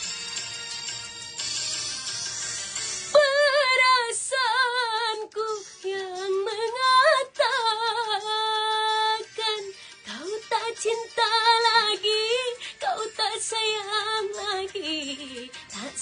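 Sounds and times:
woman singing with vibrato: 3.1 - 16.0.

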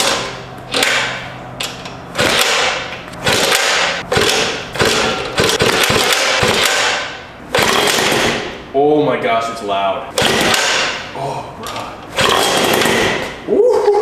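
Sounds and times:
moped engine kick-starting: 2.2 - 8.5, 12.1 - 13.4.

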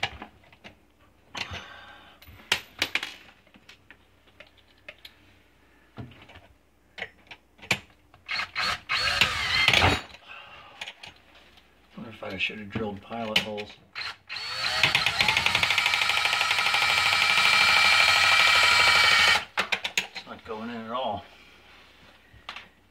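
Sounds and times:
cordless drill running: 8.3 - 9.9, 14.0 - 19.5.

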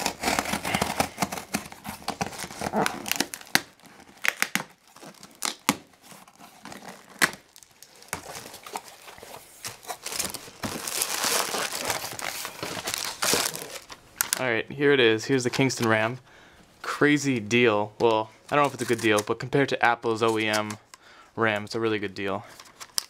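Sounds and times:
scissors cutting packing tape: 0.0 - 5.8
plastic packaging crinkling: 0.0 - 14.5.

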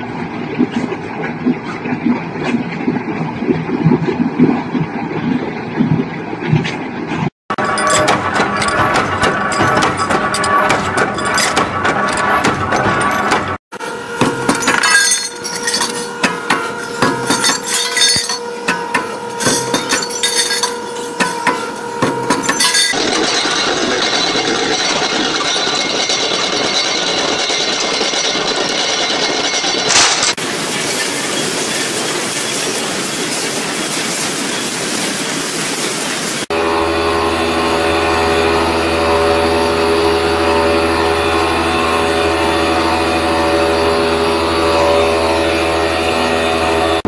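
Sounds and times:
machine hum: 7.5 - 31.7, 36.5 - 47.0
chain conveyor running: 7.5 - 36.5
chain links clanking: 7.6 - 13.6, 14.2 - 34.0.

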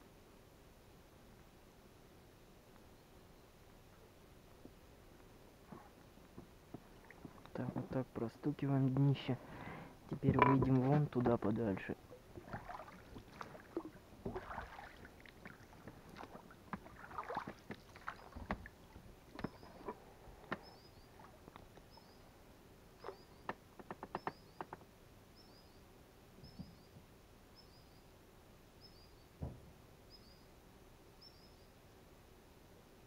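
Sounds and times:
small bird chirping: 17.9 - 18.5, 19.4 - 19.9, 20.6 - 22.4, 23.0 - 28.2, 28.8 - 29.4, 30.0 - 30.5, 31.2 - 31.8.

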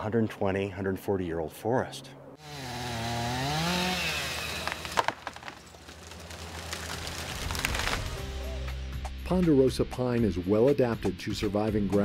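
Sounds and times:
chainsaw revving: 2.4 - 8.0
wood cracking: 3.3 - 8.7.

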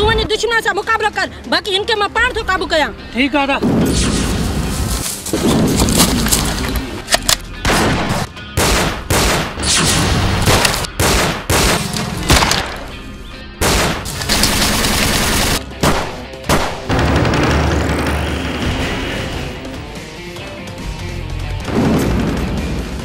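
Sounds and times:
background music: 0.0 - 23.0
gunshots: 7.6 - 12.9, 13.6 - 19.1.

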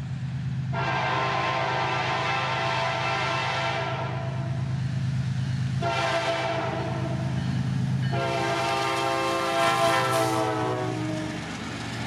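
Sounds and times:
locomotive horn blasts: 0.7 - 4.3, 5.8 - 7.2, 8.1 - 11.4.

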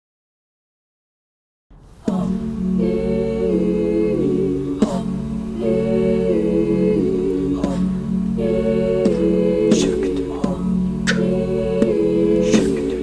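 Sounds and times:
low vocal drone: 1.8 - 13.0
women humming chords: 1.9 - 13.0
sharp percussive hit: 11.0 - 13.0.

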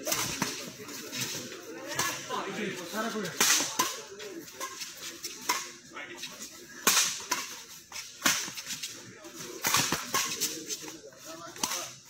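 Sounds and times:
racket striking shuttlecock: 9.6 - 10.5.

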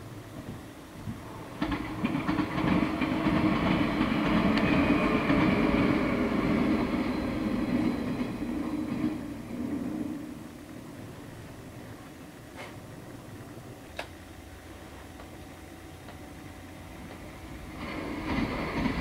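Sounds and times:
electric train passing: 0.0 - 19.0
train wheels clicking over rail joints: 0.3 - 10.8, 15.1 - 19.0.

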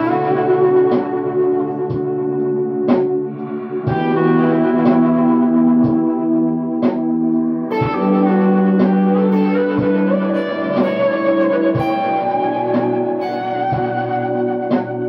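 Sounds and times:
ambient electric guitar: 0.0 - 15.0.

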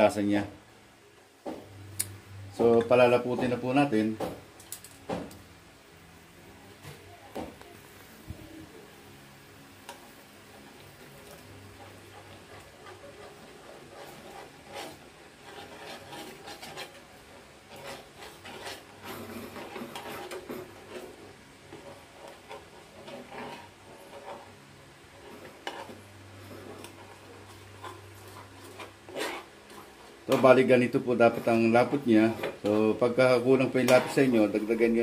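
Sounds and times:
metal spoon scraping frying pan: 10.5 - 35.0.

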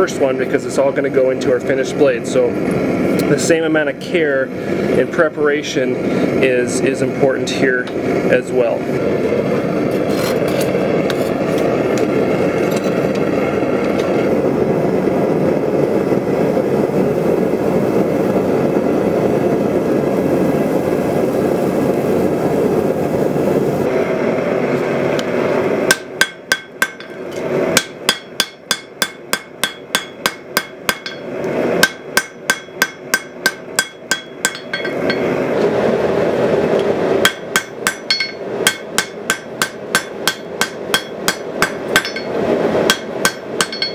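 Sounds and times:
gas forge burner rushing: 0.0 - 43.9
hammer ringing on anvil: 25.9 - 27.2, 27.8 - 35.3, 37.2 - 43.9.

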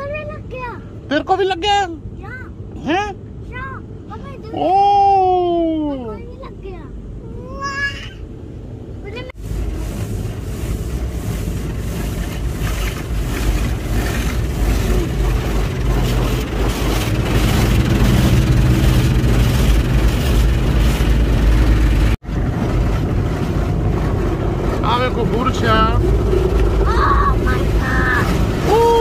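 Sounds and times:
car wash motor hum: 0.0 - 29.0
water jets hitting car: 9.4 - 29.0.

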